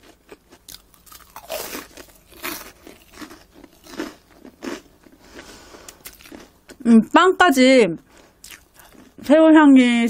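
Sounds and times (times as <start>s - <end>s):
crunching while chewing: 0.0s - 6.8s, 8.1s - 9.2s.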